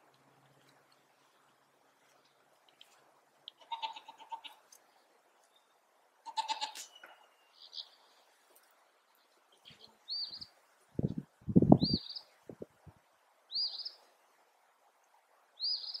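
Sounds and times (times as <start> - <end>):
sheep bleating: 3.6 - 4.6, 6.3 - 6.9.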